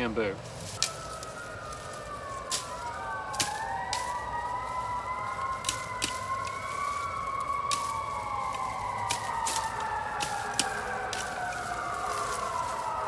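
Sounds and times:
distant siren-like wail: 0.0 - 13.0
bamboo twigs snapping: 0.4 - 13.0.

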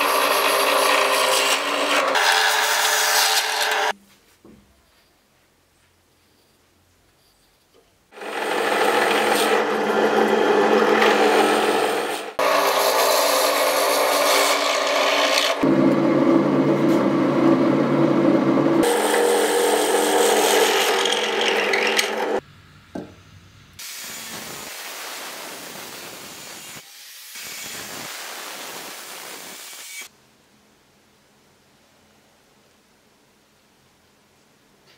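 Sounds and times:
quiet steady hiss: 4.0 - 8.1, 30.1 - 34.9
drill press boring into wood: 8.2 - 15.7, 18.8 - 22.4.

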